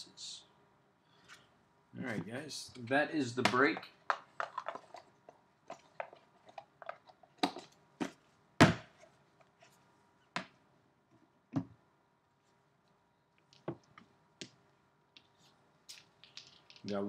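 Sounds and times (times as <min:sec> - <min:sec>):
box thud: 0:07.4 - 0:09.0.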